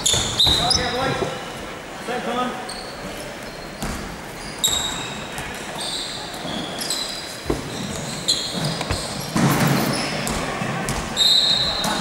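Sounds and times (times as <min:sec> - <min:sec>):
sneakers squeaking on floor: 0:00.0 - 0:01.6, 0:02.6 - 0:12.0
basketball bouncing on court: 0:08.5 - 0:11.1.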